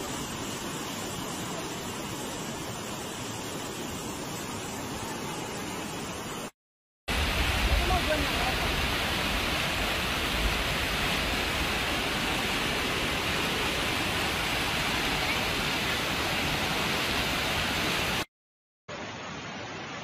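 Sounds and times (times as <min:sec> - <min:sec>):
floodwater rushing: 0:07.1 - 0:18.3.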